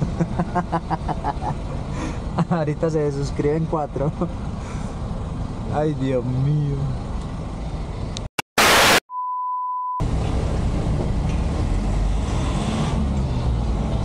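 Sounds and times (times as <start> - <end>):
truck engine and road noise: 0.0 - 9.0, 10.0 - 14.0
loud static blast: 8.5 - 9.1
censor bleep: 8.6 - 10.0.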